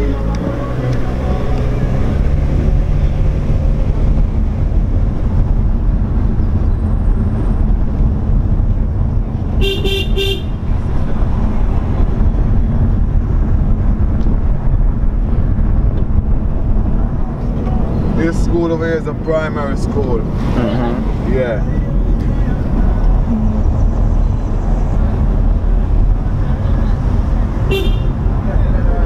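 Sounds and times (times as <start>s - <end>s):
car driving rumble: 0.0s - 29.0s
car horn tooting: 9.6s - 10.7s, 27.7s - 28.2s.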